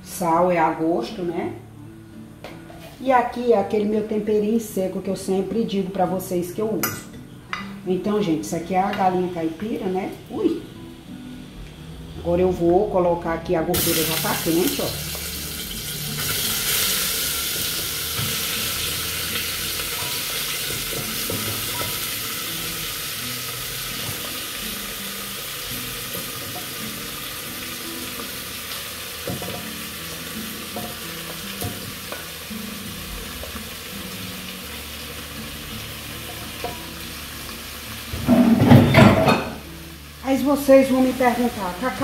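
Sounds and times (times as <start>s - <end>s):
food sizzling in hot oil: 13.7s - 42.0s.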